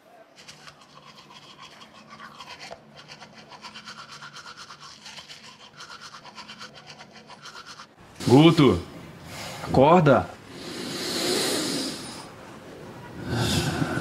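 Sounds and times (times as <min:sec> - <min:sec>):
toothbrush scrubbing teeth: 0:00.4 - 0:08.0.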